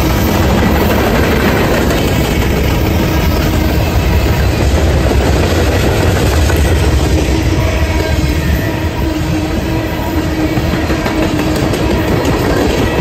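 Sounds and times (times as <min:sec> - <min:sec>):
train wheels rumbling on rail: 0:00.0 - 0:13.0.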